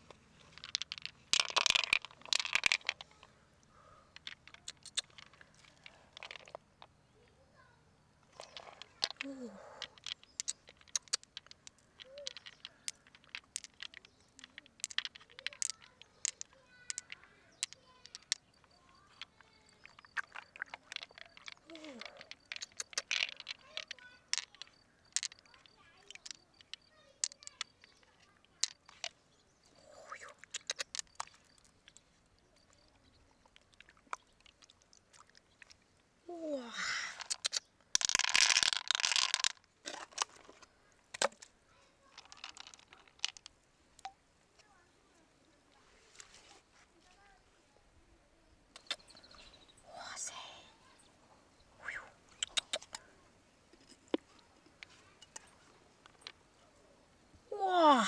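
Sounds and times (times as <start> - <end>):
pearls clicking together: 0.0 - 7.0, 8.1 - 44.8, 48.7 - 50.7, 51.6 - 53.1, 53.7 - 56.6
wet squelches: 19.7 - 23.1.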